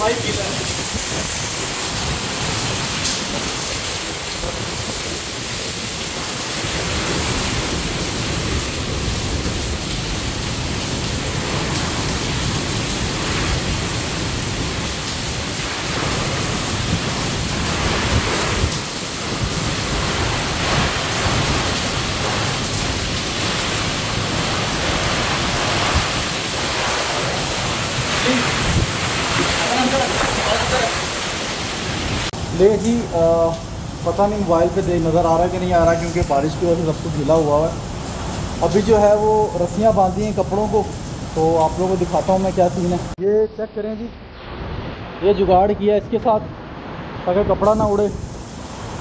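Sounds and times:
heavy rain pouring: 0.0s - 49.0s
wind on microphone: 10.9s - 30.9s.

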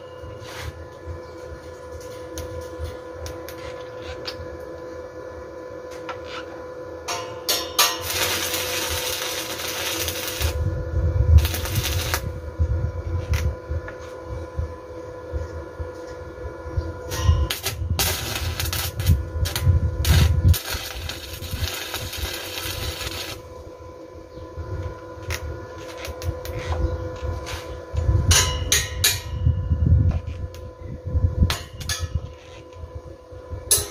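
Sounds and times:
steady hum: 0.0s - 33.9s
welding arc crackling: 7.1s - 12.4s, 17.1s - 23.7s, 24.8s - 27.7s.

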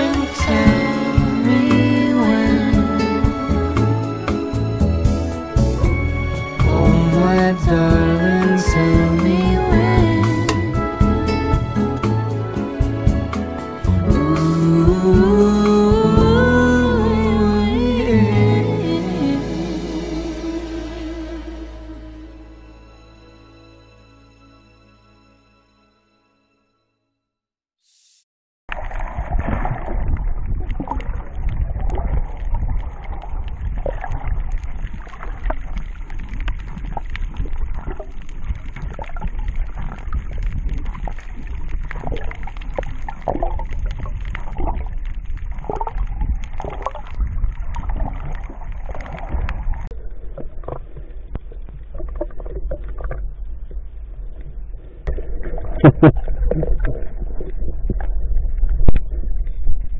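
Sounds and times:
muffled underwater rumble: 0.0s - 22.7s, 28.7s - 59.9s
underwater swishes: 28.7s - 59.9s.

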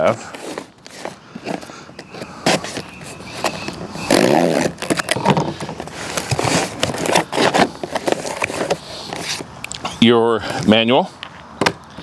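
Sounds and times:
cardboard box flaps scraping: 2.5s - 9.4s.

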